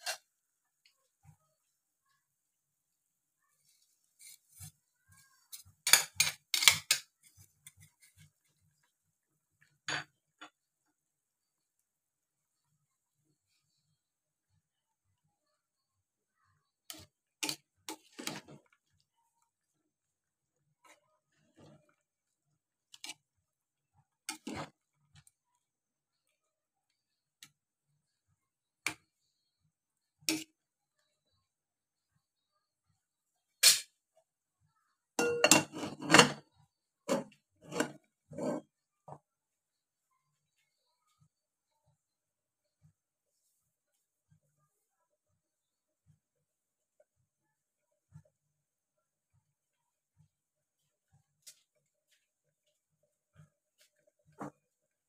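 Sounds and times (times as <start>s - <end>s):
spoon scraping a bowl: 0.0s - 0.3s, 4.2s - 4.8s, 5.4s - 8.3s, 16.9s - 18.8s, 24.3s - 24.8s, 35.2s - 36.5s, 37.1s - 38.8s
spoon clinking in a pot: 5.5s - 7.1s, 35.2s - 36.4s
plastic ladle clinking metal pot: 35.2s - 36.4s.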